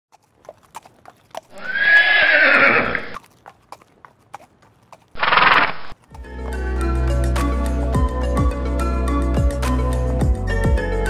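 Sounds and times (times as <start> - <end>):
clip-clopping hoofbeats: 0.1 - 6.7
horse neighing: 1.5 - 3.2, 5.2 - 6.0.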